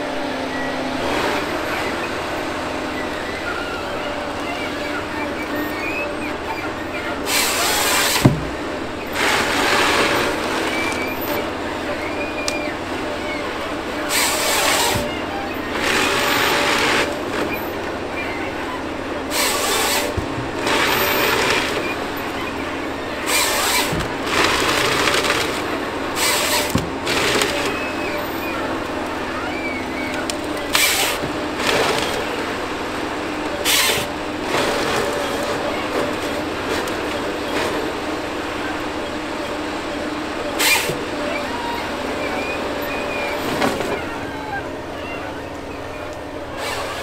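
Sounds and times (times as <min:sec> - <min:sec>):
engine and hydraulics running: 0:00.0 - 0:47.0
chainsaw cutting tree stem: 0:40.6 - 0:41.0.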